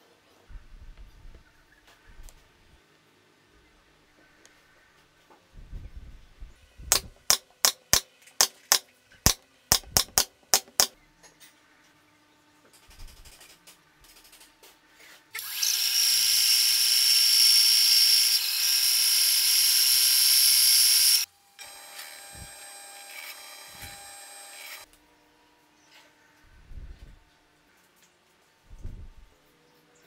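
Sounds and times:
bandsaw cutting wood: 15.4s - 24.9s
drill press boring into plywood: 15.4s - 24.9s.

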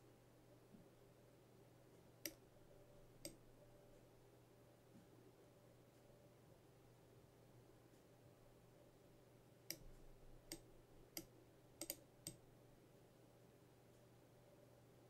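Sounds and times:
faint steady hum: 0.0s - 15.0s
computer mouse clicking: 3.2s - 3.4s, 9.7s - 12.4s.

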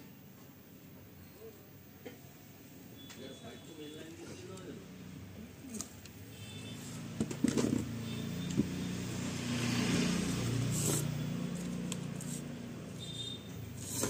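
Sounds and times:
passing vehicle engine hum: 7.8s - 13.0s.

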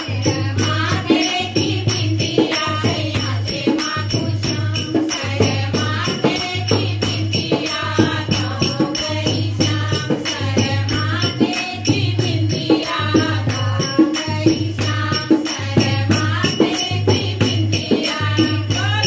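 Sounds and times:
hand drum beat: 0.0s - 19.0s
jingling percussion: 0.0s - 19.0s
women singing a devotional song: 0.0s - 19.0s
hand claps: 11.2s - 12.0s.

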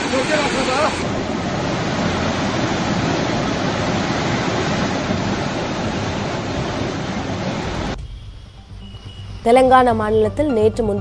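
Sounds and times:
flooded river rushing: 0.0s - 8.0s.

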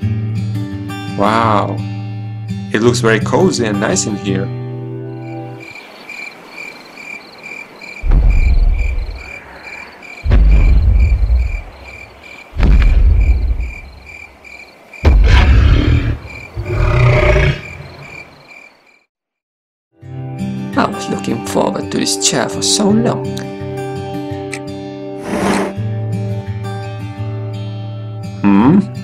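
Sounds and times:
crickets chirping: 4.9s - 19.1s
heavy booming footsteps: 8.0s - 9.4s, 10.2s - 14.2s, 15.0s - 15.6s
low growling roar: 15.1s - 18.1s.

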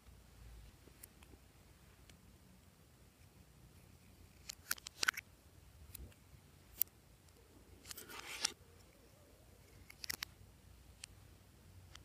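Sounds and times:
scissors scraping cut: 7.9s - 8.6s.

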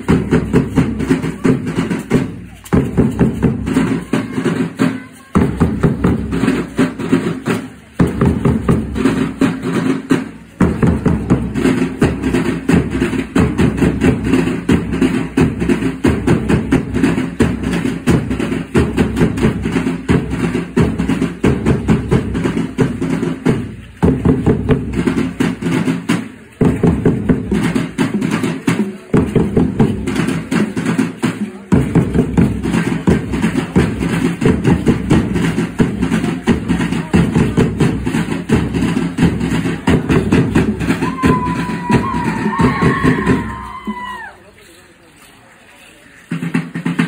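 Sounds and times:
drum group beating dance rhythm: 0.0s - 44.3s, 46.3s - 47.0s.

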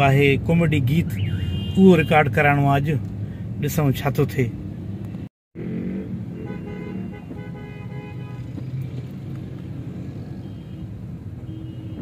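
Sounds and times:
city street traffic: 0.0s - 12.0s
vehicle horn: 1.3s - 2.2s, 6.3s - 8.6s, 10.4s - 12.0s.

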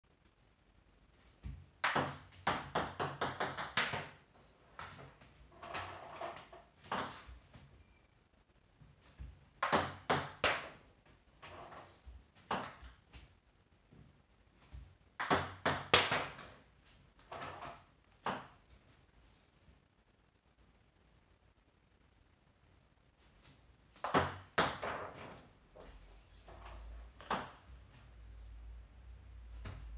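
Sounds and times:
table tennis ball bouncing: 1.8s - 4.2s, 4.8s - 7.3s, 9.6s - 10.8s, 12.4s - 13.1s, 15.2s - 16.6s, 17.3s - 18.6s, 24.0s - 25.4s, 26.5s - 27.7s.

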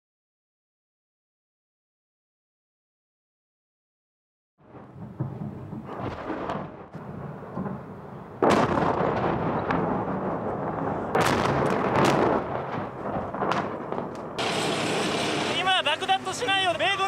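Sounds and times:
heavy explosions with rumble: 4.6s - 16.3s.

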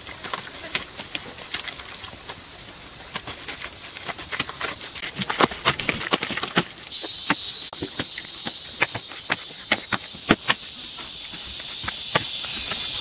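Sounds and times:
insects buzzing: 6.6s - 13.0s.

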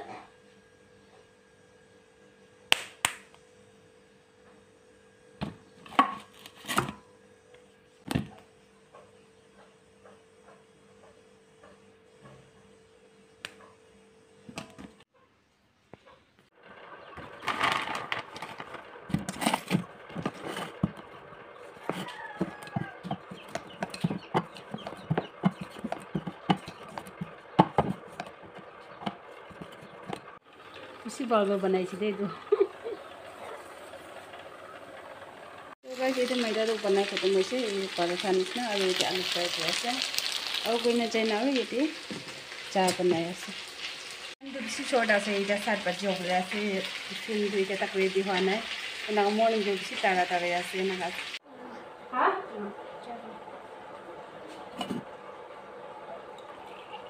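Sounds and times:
hands slapping dough: 2.7s - 3.3s.

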